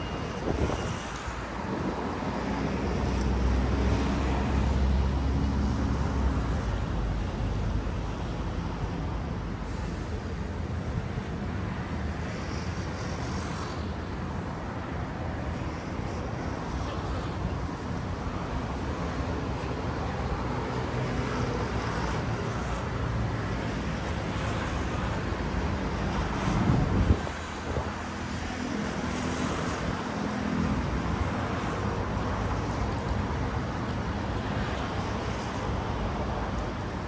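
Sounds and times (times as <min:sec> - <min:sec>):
wind on microphone: 0:00.0 - 0:04.4, 0:24.4 - 0:30.2
road traffic rumble: 0:00.0 - 0:37.0.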